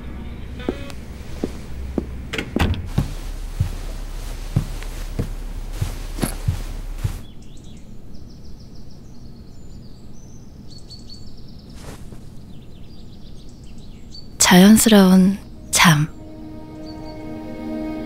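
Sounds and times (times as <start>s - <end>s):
low hum: 0.0s - 7.3s
small birds chirping: 3.0s - 15.6s.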